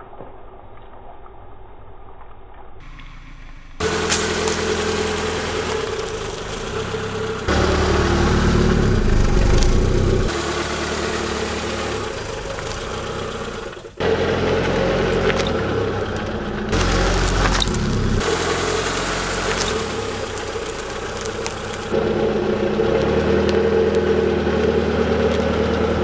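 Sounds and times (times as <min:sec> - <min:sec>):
car engine idling: 0:02.8 - 0:26.0.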